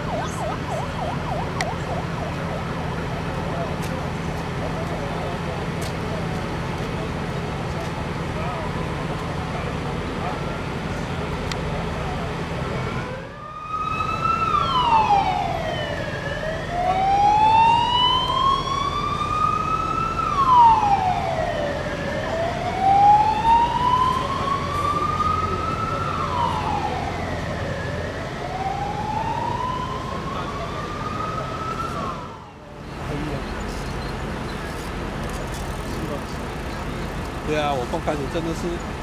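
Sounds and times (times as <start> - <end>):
emergency vehicle siren wailing: 0.0 - 32.9.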